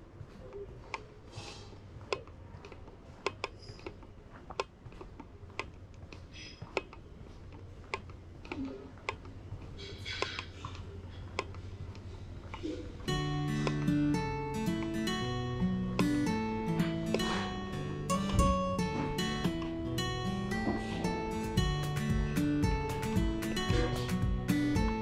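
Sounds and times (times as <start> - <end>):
steady low hum: 0.0 - 25.0
footsteps on hard floor: 16.0 - 19.8, 20.4 - 25.0.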